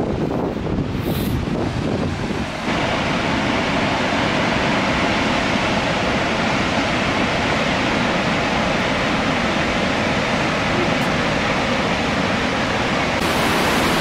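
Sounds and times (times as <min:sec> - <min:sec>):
waterfall roaring: 0:00.0 - 0:14.0.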